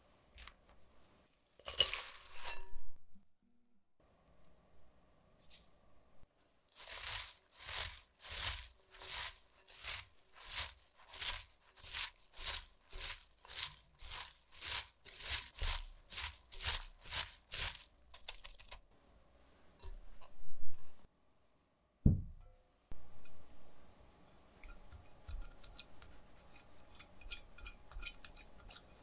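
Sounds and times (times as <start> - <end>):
cabbage being squeezed: 6.7 - 18.7.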